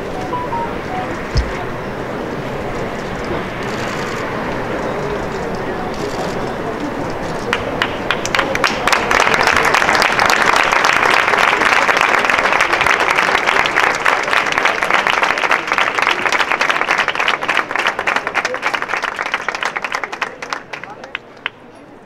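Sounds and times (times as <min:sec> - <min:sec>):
large crowd applauding: 0:07.5 - 0:21.6.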